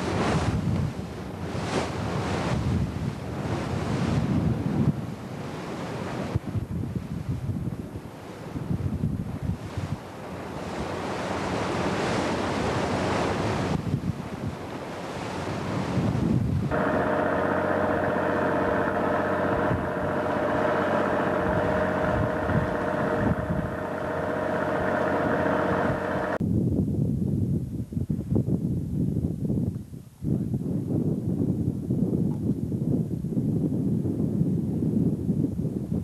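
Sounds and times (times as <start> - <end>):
waves washing along hull: 0.0 - 26.4
wind buffeting microphone: 0.0 - 36.0
boat engine droning: 16.7 - 26.4.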